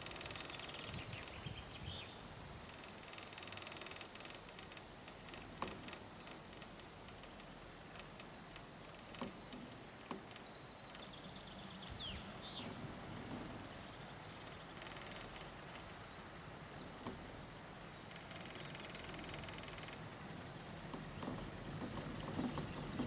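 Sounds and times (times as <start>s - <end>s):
birds chirping: 0.0s - 2.7s, 8.8s - 19.3s, 20.4s - 23.0s
faint outdoor background: 0.0s - 23.0s.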